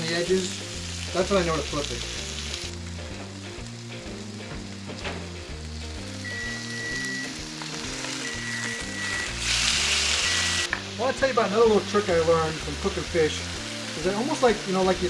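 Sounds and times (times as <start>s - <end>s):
background music with bass line: 0.0s - 15.0s
fish sizzling in a frying pan: 0.0s - 15.0s
high steady beep: 6.2s - 7.4s, 8.2s - 9.4s, 10.2s - 10.7s.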